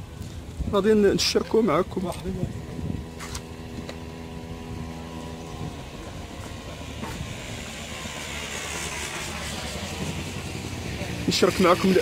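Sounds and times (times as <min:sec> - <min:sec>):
vehicle engine idling: 0:00.0 - 0:12.0
traffic hiss: 0:03.1 - 0:12.0.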